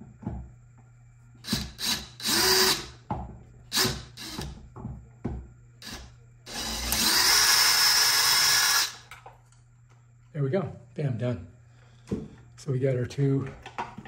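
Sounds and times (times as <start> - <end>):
power drill motor: 1.4 - 3.0, 3.7 - 4.5, 5.8 - 9.1.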